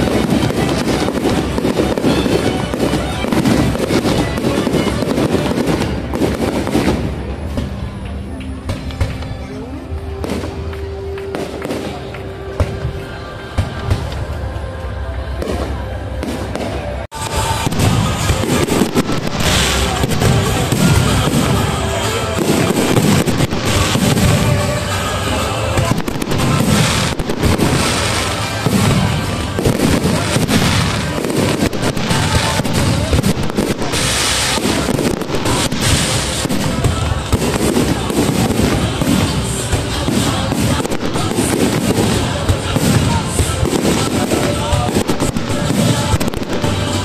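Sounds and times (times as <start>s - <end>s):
fireworks bangs and crackling: 0.0s - 47.0s.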